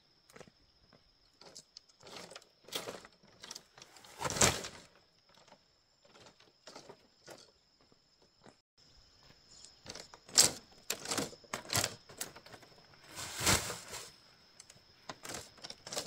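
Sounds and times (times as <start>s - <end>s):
sack dropped with a thud: 13.1s - 14.1s.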